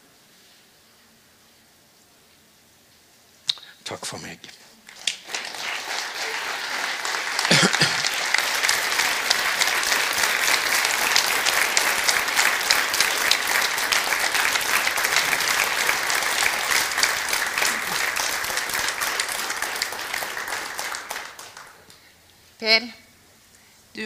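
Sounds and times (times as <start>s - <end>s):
audience applauding: 4.9s - 22.0s.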